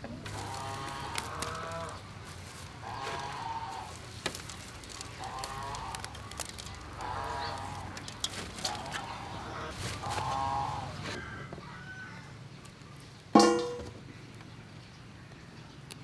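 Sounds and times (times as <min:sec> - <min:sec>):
farm animals calling: 0:00.0 - 0:12.4
leafy greens rustling: 0:00.2 - 0:11.2.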